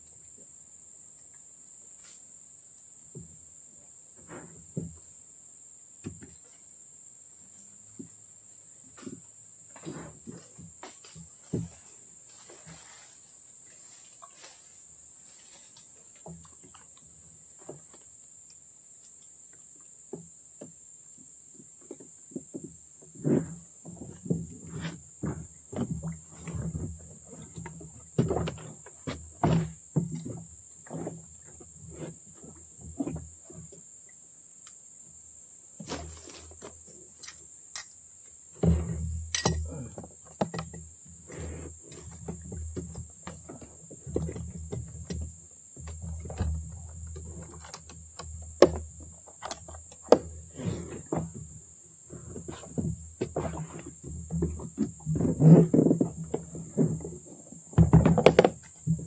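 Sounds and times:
knocks and thumps in a boat: 0:04.2 - 0:05.0, 0:06.0 - 0:06.4, 0:09.0 - 0:11.9, 0:20.1 - 0:33.9, 0:38.5 - 0:59.0
fishing gear knocking and clinking: 0:39.3 - 0:39.7.

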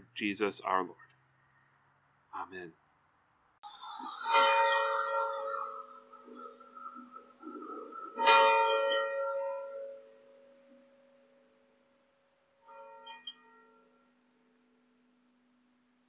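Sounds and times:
bell low hum: 0:04.0 - 0:11.6
church bell tolling: 0:04.1 - 0:11.8, 0:12.6 - 0:14.2.

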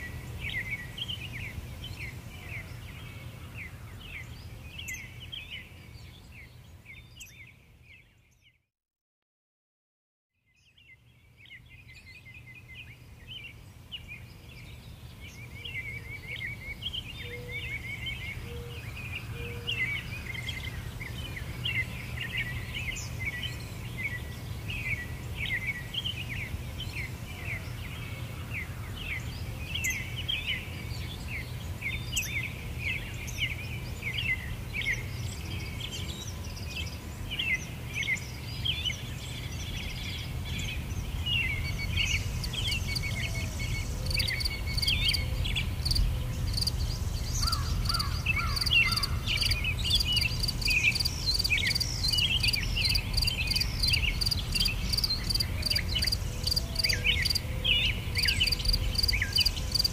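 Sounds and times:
small birds chirping: 0:10.4 - 0:59.9
insect pulsing chirp: 0:44.0 - 0:45.2, 0:58.2 - 0:59.9.

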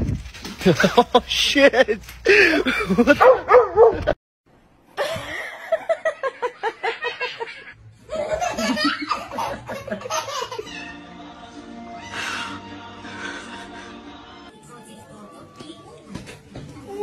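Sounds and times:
people laughing: 0:00.6 - 0:03.2, 0:05.0 - 0:11.0
dog barking: 0:03.2 - 0:04.2.

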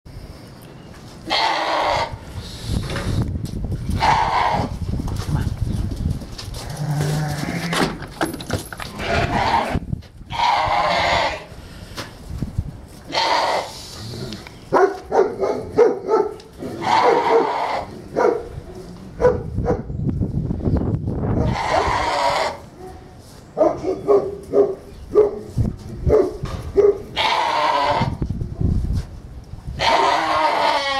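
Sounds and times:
lamb bleating: 0:01.3 - 0:02.2, 0:04.0 - 0:04.7, 0:09.0 - 0:11.5, 0:13.1 - 0:13.8, 0:16.8 - 0:17.9, 0:21.5 - 0:22.6, 0:27.2 - 0:28.2, 0:29.8 - 0:30.9.

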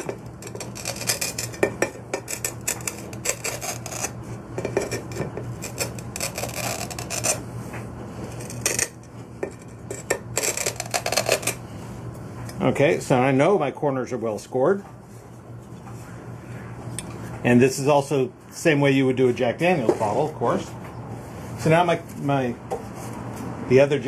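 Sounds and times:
glass cutter scratching glass: 0:00.0 - 0:07.5, 0:08.2 - 0:11.6.

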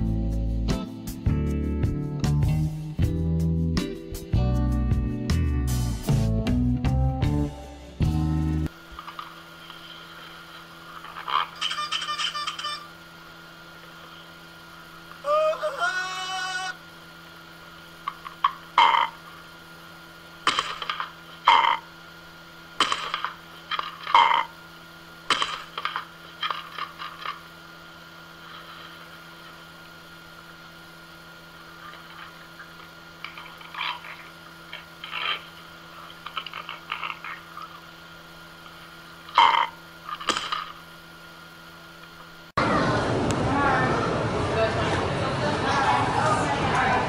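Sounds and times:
steady hum: 0:00.0 - 0:47.0
parrot squawking: 0:11.4 - 0:12.9.

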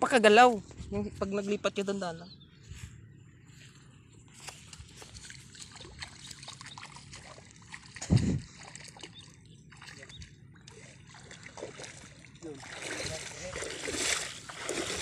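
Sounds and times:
water splashing and sloshing: 0:04.3 - 0:15.0
water trickling: 0:05.0 - 0:15.0.

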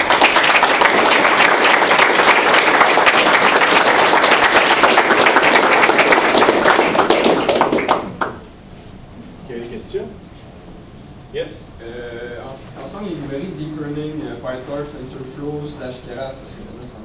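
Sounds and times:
audience applauding: 0:00.0 - 0:08.4.

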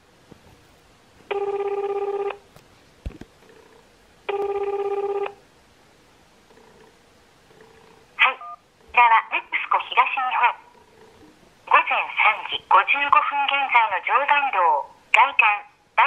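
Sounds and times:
telephone ringback tone: 0:01.3 - 0:02.4, 0:04.3 - 0:05.4.

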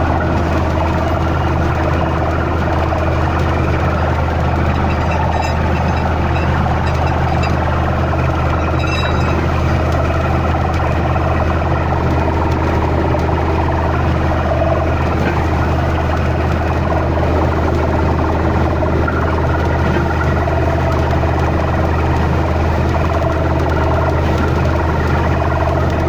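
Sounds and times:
water gushing and splashing: 0:00.0 - 0:20.8
engine humming: 0:00.0 - 0:26.0.

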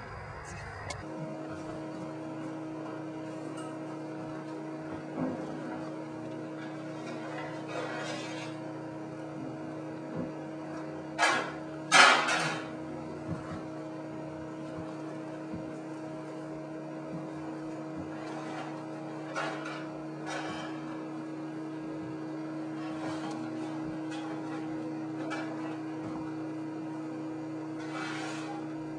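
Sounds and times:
steady hum: 0:00.0 - 0:28.9
cookware scraping and clattering: 0:06.6 - 0:08.7, 0:11.2 - 0:12.8, 0:18.1 - 0:21.1, 0:22.7 - 0:26.0, 0:27.7 - 0:28.7.

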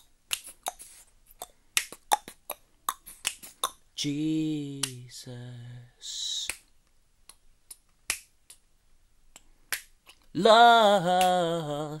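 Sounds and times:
finger snaps: 0:00.0 - 0:00.8, 0:01.4 - 0:03.8, 0:04.8 - 0:05.1, 0:06.4 - 0:08.7, 0:09.3 - 0:10.1
man singing low held notes: 0:04.0 - 0:06.5, 0:10.4 - 0:12.0.

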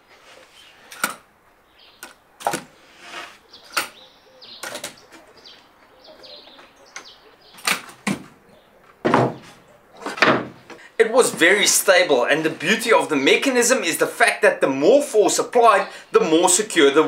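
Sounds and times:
wooden board knocking in clamps: 0:09.0 - 0:09.5.

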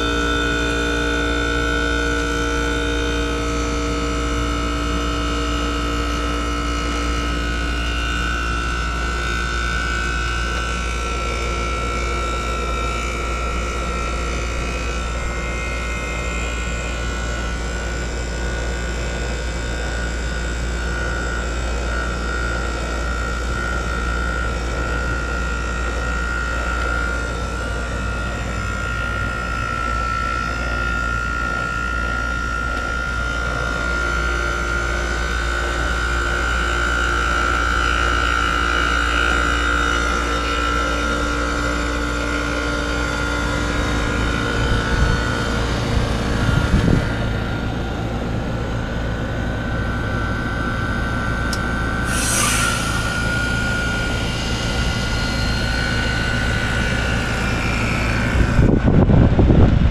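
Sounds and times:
constant high whine: 0:00.0 - 0:59.9
heat pump low hum: 0:00.0 - 0:59.9.

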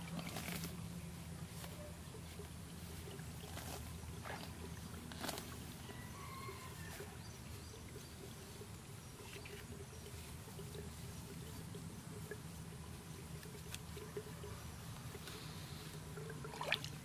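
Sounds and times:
muddy water sloshing: 0:00.0 - 0:17.0.

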